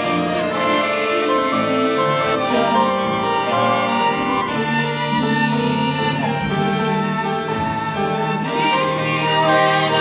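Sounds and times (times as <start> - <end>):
accordion: 0.0 - 10.0
piano: 0.0 - 10.0
violin playing: 0.0 - 10.0.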